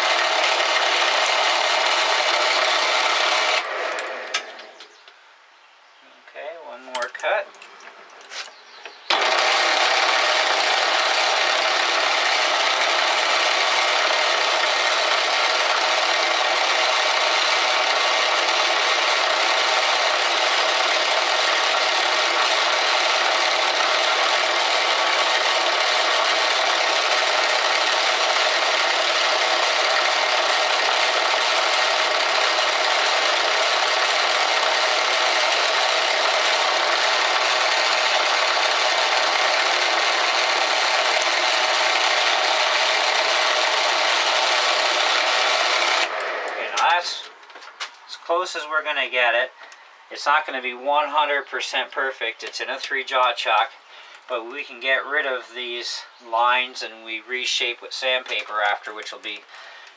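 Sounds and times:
lathe cutter rasping metal: 0.0 - 4.4, 9.1 - 47.3.

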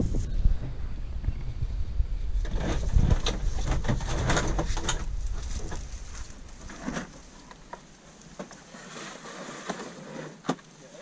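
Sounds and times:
wind buffeting microphone: 0.0 - 6.8
plastic decoys rustling and knocking: 2.4 - 10.8.

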